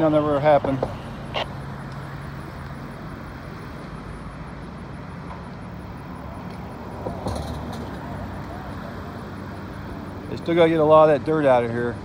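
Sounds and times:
distant road traffic: 0.0 - 12.0
distant earthmoving equipment: 6.4 - 9.3.

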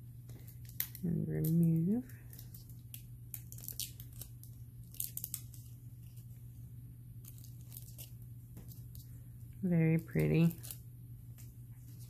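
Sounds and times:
foil crinkling and crackling: 0.3 - 6.3, 7.2 - 9.1, 9.8 - 10.8.

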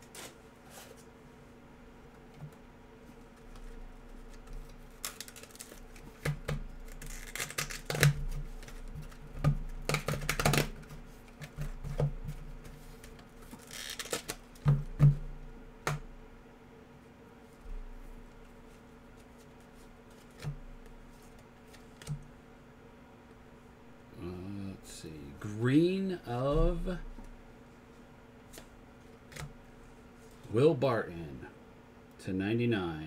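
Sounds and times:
card pack wrappers crinkling: 4.4 - 6.1, 6.8 - 9.2, 13.5 - 14.4.

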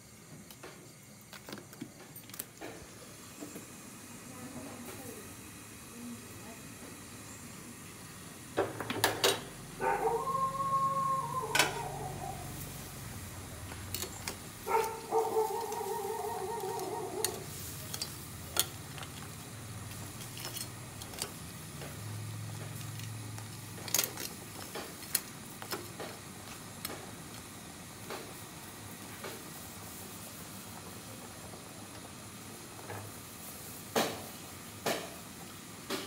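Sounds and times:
shrimp boiling in a pot: 0.0 - 36.0
long howl-like tones: 9.8 - 13.0, 15.0 - 17.5
metal tongs clicking on pot: 13.9 - 19.3, 19.9 - 21.4, 22.7 - 26.0.

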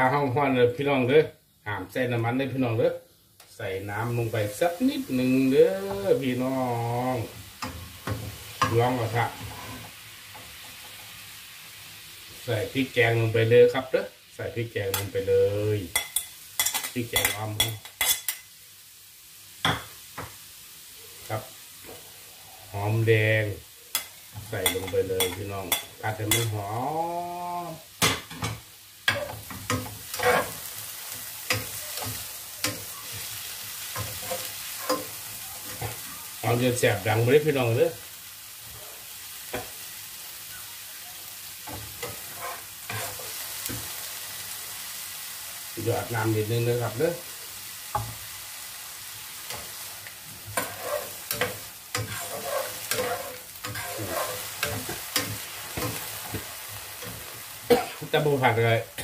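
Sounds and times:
curry paste sizzling in a pan: 0.0 - 59.0
metal spoon scraping a pan: 7.6 - 10.0, 15.9 - 18.5, 23.9 - 26.6, 28.0 - 36.3, 41.7 - 44.0, 49.4 - 57.4.

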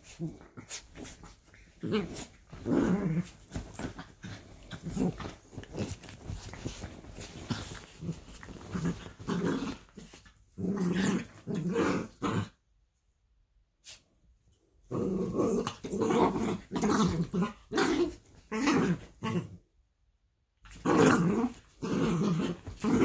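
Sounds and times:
dogs growling: 20.7 - 23.0.

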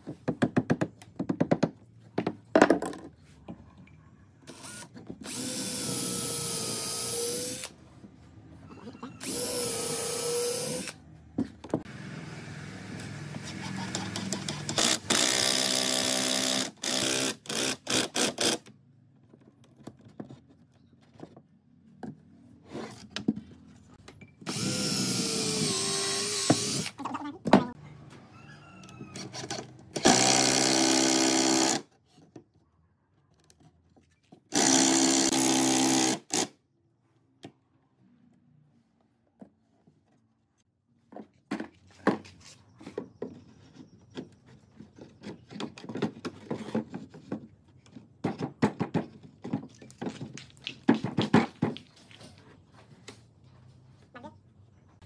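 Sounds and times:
cordless drill driving screws: 4.5 - 7.7, 9.2 - 11.0, 24.5 - 27.0, 34.5 - 36.5.

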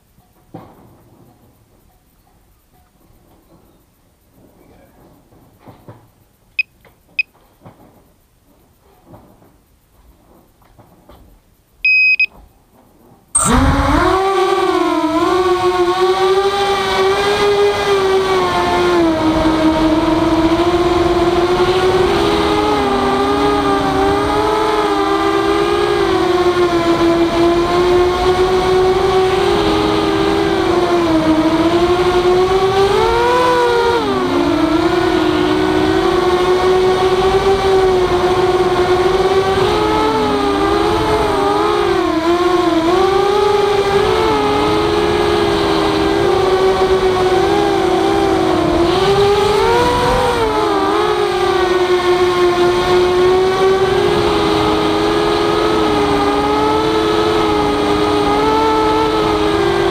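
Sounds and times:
quadcopter motors whining: 13.4 - 59.9.

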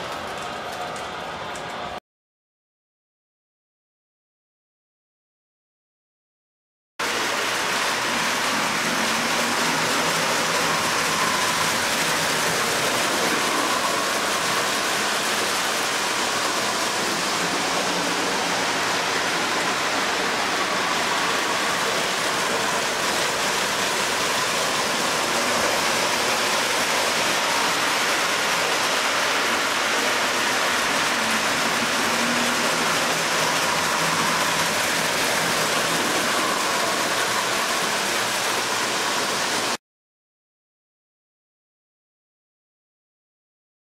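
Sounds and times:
model trains rolling on metal track: 0.0 - 2.0, 7.0 - 39.8.

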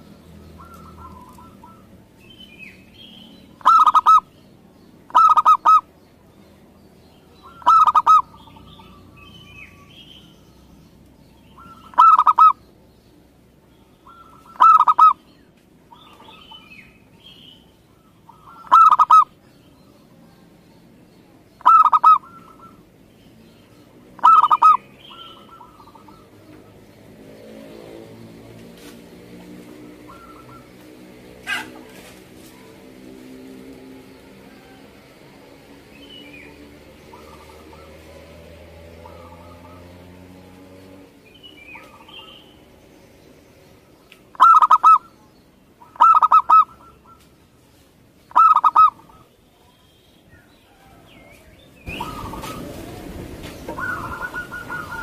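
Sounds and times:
small birds chirping: 0.0 - 55.0
dove cooing: 0.6 - 2.0, 3.6 - 4.3, 5.1 - 5.9, 7.4 - 9.1, 11.6 - 12.6, 14.0 - 15.2, 18.0 - 19.3, 21.6 - 22.8, 24.2 - 26.4, 30.0 - 30.7, 44.3 - 45.1, 45.8 - 47.3, 48.3 - 49.3, 51.9 - 55.0.

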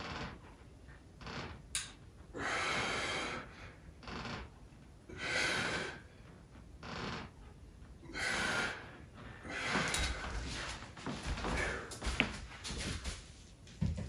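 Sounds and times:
man breathing hard: 2.3 - 3.9, 5.1 - 6.3, 8.0 - 10.8, 11.4 - 12.2
shuffling: 9.1 - 14.0.

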